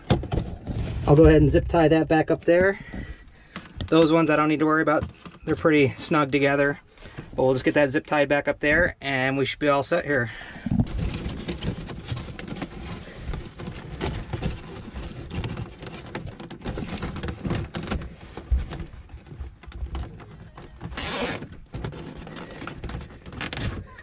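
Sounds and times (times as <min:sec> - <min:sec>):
wiring rustling against hose: 0:00.0 - 0:24.0
cable ties zipping tight: 0:21.0 - 0:21.5.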